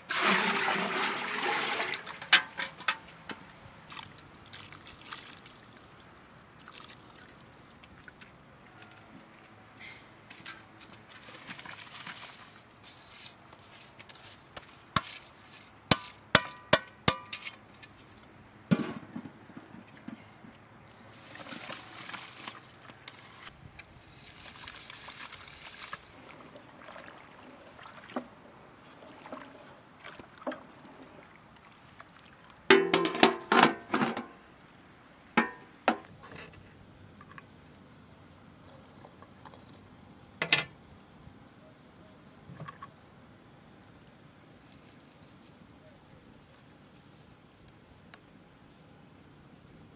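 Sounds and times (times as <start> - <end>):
metal pots clanking: 32.7 - 34.4.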